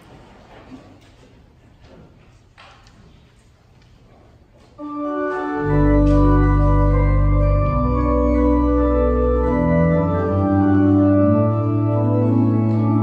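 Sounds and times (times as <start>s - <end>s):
church organ playing a hymn: 4.8s - 13.0s.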